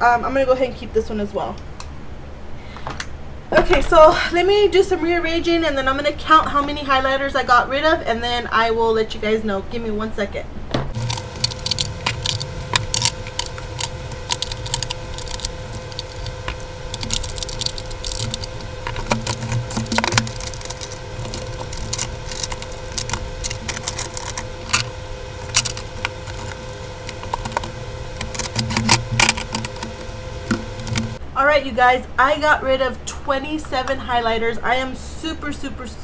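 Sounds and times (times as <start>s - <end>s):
steady hum: 10.6s - 33.3s.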